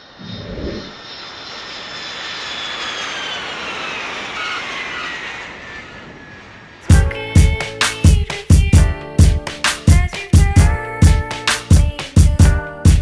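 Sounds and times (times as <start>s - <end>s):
high falling whine: 0.0s - 8.4s
aircraft engine roar: 0.0s - 12.5s.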